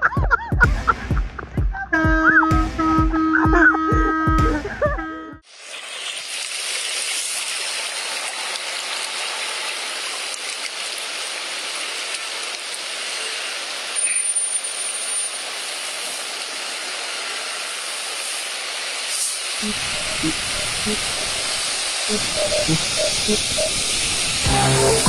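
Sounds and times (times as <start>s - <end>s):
floodwater rushing and splashing: 5.5s - 25.0s.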